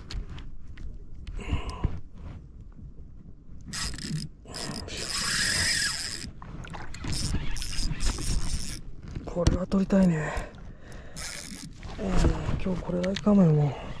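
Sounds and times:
fishing reel ratcheting whir: 3.7s - 6.3s, 6.9s - 8.8s, 11.2s - 11.6s.

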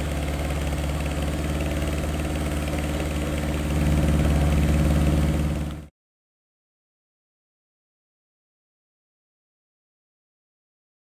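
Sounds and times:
car engine idling: 0.0s - 5.9s.

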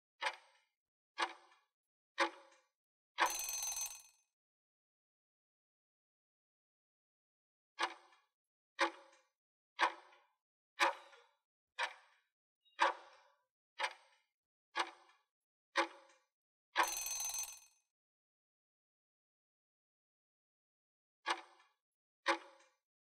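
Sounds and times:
ringing time-up signal: 3.2s - 4.1s, 16.8s - 17.7s.

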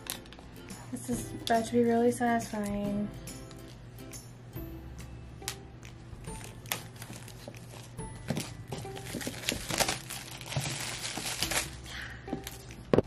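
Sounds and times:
background music: 0.0s - 13.0s
plastic wrap crinkling: 6.2s - 13.0s.

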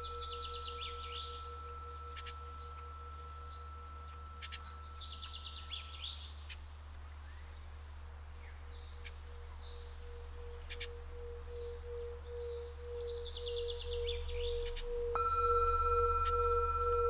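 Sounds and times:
singing bowl ringing: 0.0s - 6.4s, 13.5s - 17.0s
birds chirping: 0.0s - 17.0s
steady low hum: 0.0s - 17.0s.

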